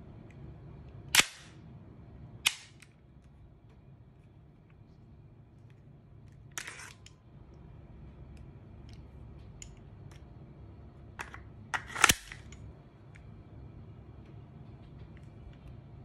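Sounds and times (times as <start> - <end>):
pistol magazine sliding out: 6.6 - 7.1, 11.2 - 12.6
magazine seating metallic clack: 11.2 - 12.6.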